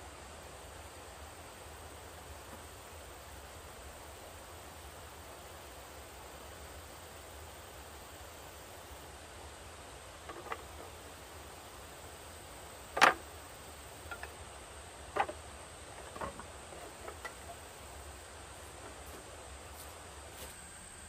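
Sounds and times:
steady hiss: 0.0s - 21.0s
bamboo poles knocking: 12.9s - 13.3s, 14.0s - 14.4s, 15.1s - 15.4s, 16.0s - 17.6s.

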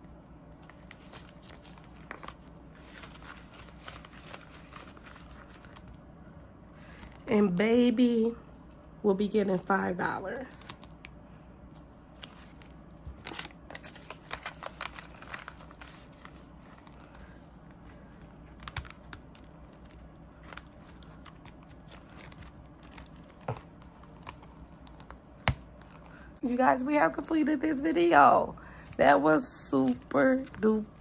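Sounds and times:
vinyl pockets crinkling: 12.2s - 26.2s.

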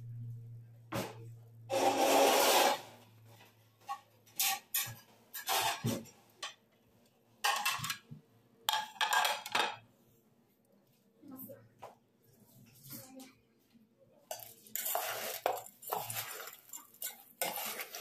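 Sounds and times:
spoon scraping metal pot: 3.9s - 5.9s, 14.3s - 18.0s.

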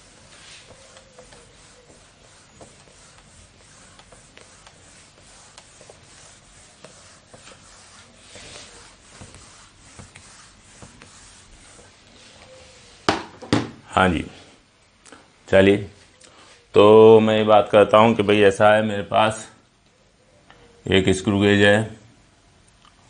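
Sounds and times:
duster rubbing whiteboard: 0.0s - 13.2s.

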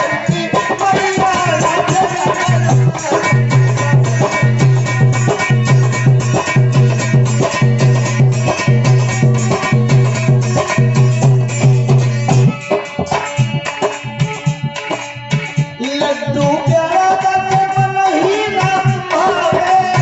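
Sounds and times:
man singing: 0.0s - 11.2s, 12.5s - 20.0s
hand drums beating: 0.0s - 20.0s
harmonium tones: 0.0s - 20.0s
heavy low drum pulsing: 0.8s - 13.5s.

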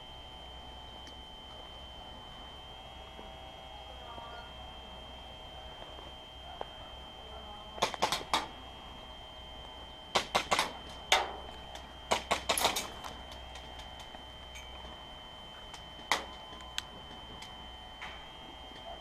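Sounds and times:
gas pistol firing clacks: 10.2s - 11.3s.

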